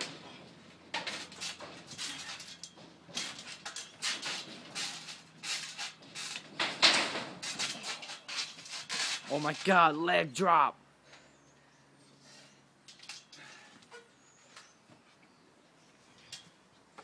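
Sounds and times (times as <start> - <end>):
sheet-metal fence rattling: 0.0 - 9.3.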